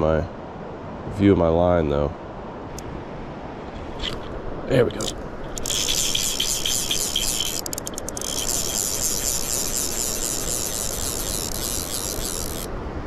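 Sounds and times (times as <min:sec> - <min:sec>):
fishing reel ratcheting: 0:04.0 - 0:04.3, 0:04.9 - 0:12.7.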